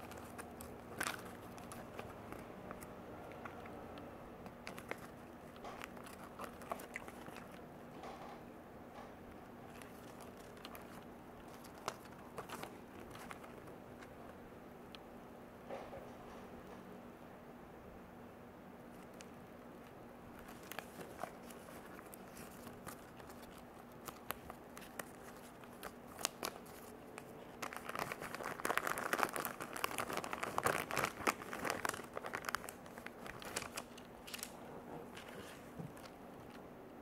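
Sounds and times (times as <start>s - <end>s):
paper and cardboard rustling: 4.5s - 7.6s, 9.7s - 14.1s, 20.3s - 36.6s.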